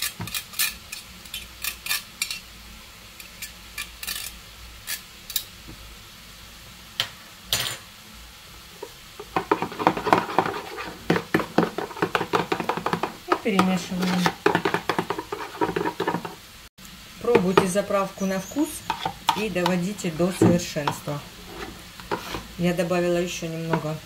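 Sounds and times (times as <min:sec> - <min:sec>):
spoon scraping metal grater: 0:00.0 - 0:02.4, 0:03.3 - 0:05.0, 0:09.2 - 0:16.4
spoon stirring in bowl: 0:08.8 - 0:16.4, 0:17.3 - 0:22.5.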